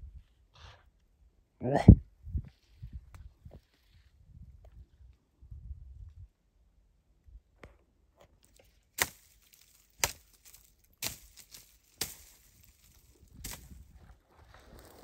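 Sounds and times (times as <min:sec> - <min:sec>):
dry twigs snapping: 0:08.4 - 0:14.1.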